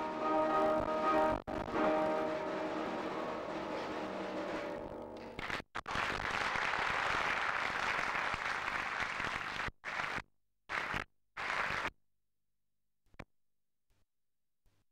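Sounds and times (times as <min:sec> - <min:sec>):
audience applauding: 0:04.5 - 0:11.9.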